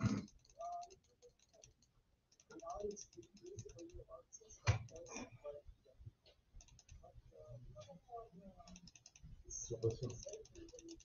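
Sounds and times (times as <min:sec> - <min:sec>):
keyboard typing: 0:00.0 - 0:05.3, 0:06.3 - 0:07.1, 0:08.6 - 0:11.0.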